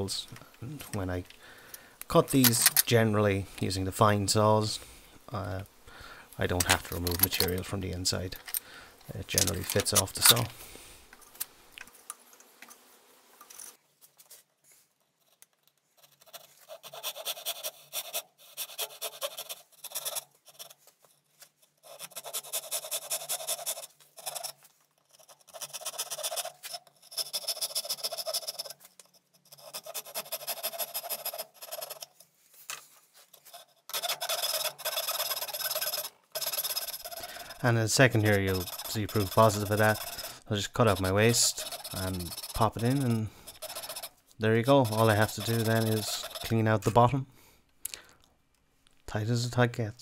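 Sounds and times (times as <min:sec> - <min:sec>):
hand saw cutting wood: 0:16.6 - 0:20.8, 0:21.8 - 0:24.6, 0:25.2 - 0:28.8, 0:29.5 - 0:32.1, 0:33.9 - 0:46.8
coping saw cutting: 0:33.9 - 0:46.8.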